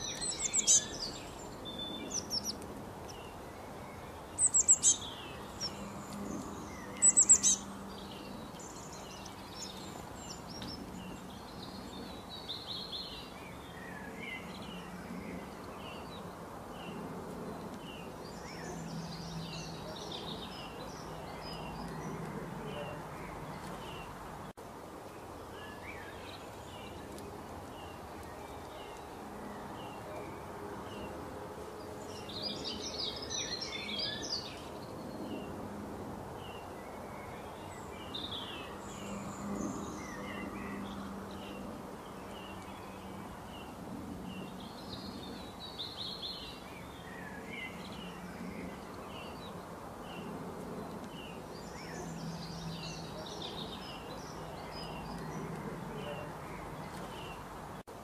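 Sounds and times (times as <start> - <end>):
bird chirping: 0.0 - 24.2, 31.8 - 35.5
bursts of birdsong: 0.0 - 24.6, 25.2 - 35.7
steady background hiss: 0.0 - 58.0.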